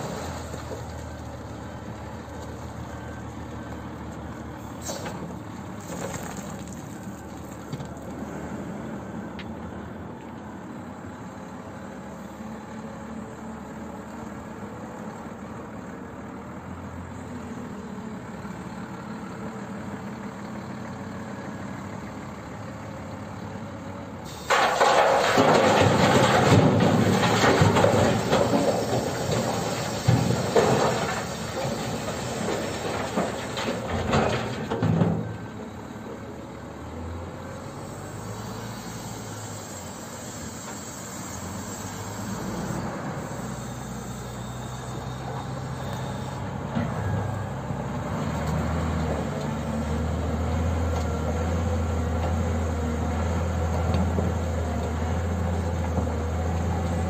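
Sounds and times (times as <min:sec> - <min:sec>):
diesel engines running: 0:00.0 - 0:57.0
stone clattering into steel truck bed: 0:24.3 - 0:35.3.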